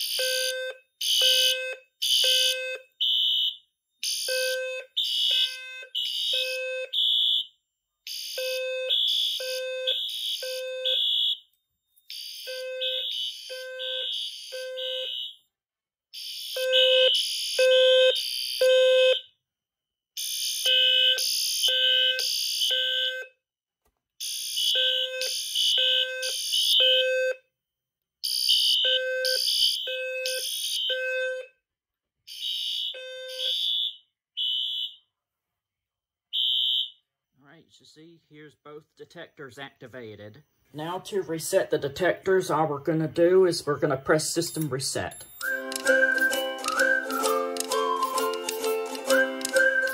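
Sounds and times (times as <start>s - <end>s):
high shrill fire alarm beeps: 0.0s - 7.5s, 8.1s - 15.5s, 16.2s - 19.3s, 20.2s - 23.4s, 24.2s - 27.4s, 28.3s - 31.6s, 32.3s - 35.1s, 36.4s - 37.0s, 44.6s - 48.3s
low-tone fire alarm beeps: 0.0s - 15.5s, 16.1s - 19.4s, 20.2s - 23.4s, 24.2s - 27.5s, 28.2s - 31.6s, 32.3s - 35.1s, 36.3s - 37.1s, 45.2s - 48.3s, 49.1s - 49.9s.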